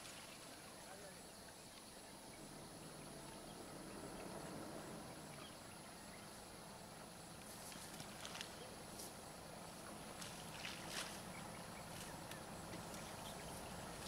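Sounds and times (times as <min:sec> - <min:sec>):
soft hiss: 0:00.0 - 0:14.0.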